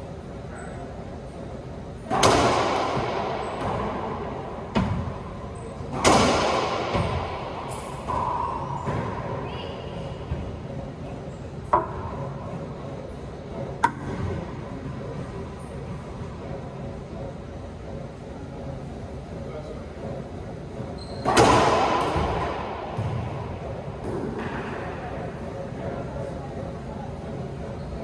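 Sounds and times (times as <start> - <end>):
racquet hitting ball: 2.1 - 5.2, 5.9 - 9.5, 11.7 - 12.2, 21.2 - 24.9
ball smacking court walls: 5.9 - 9.2.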